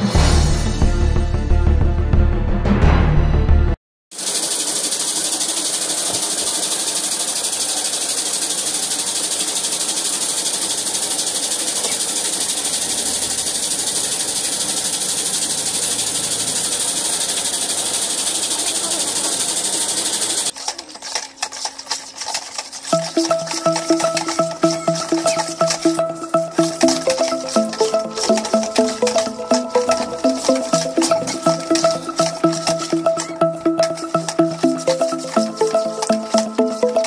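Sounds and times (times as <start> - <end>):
machine whirring hiss: 4.2 - 20.5
whisk scraping plastic basin: 20.5 - 37.0
intro music: 22.9 - 37.0.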